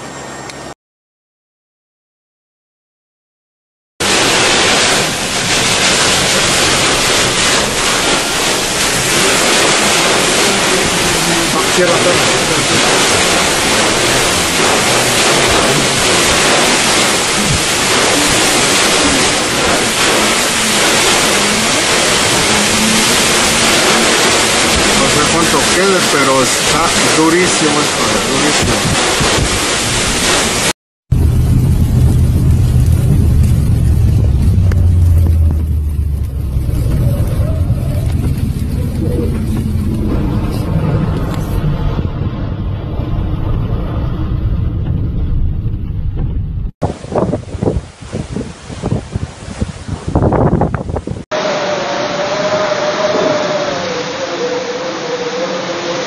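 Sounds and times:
water spray hiss: 0:04.0 - 0:30.7, 0:51.3 - 0:56.0
vehicle road rumble: 0:04.0 - 0:56.0
strong wind on microphone: 0:26.6 - 0:35.8, 0:36.4 - 0:56.0.

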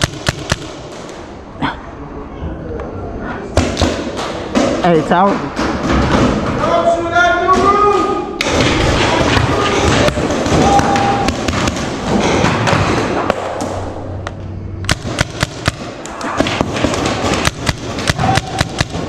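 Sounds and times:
paintball markers firing: 0:00.0 - 0:01.1, 0:14.9 - 0:19.0.

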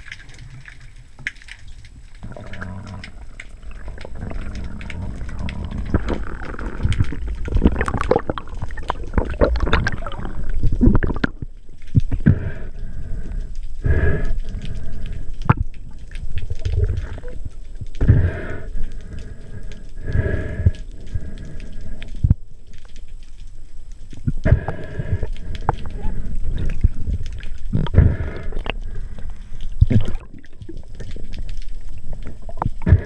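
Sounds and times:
clicks knocks and gurgles: 0:00.0 - 0:33.0
underwater water surges: 0:01.9 - 0:22.3.

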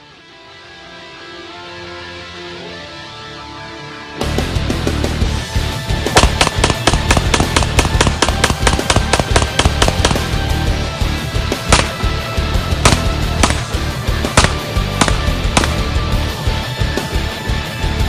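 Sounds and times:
rock music with fast drumbeat: 0:04.2 - 0:18.0.

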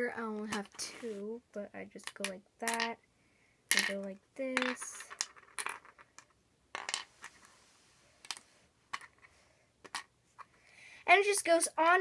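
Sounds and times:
glass stones clicking into wood: 0:04.6 - 0:07.0.

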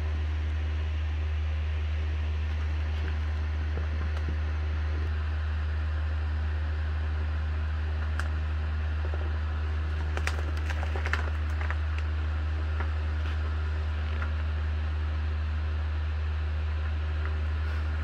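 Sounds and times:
low machine hum: 0:00.0 - 0:18.0
faint clicks and rustles: 0:08.0 - 0:14.5.

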